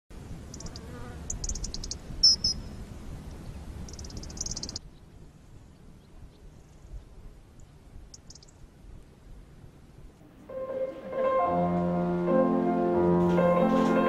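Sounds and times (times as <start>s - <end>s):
small birds chirping: 0.4s - 8.7s.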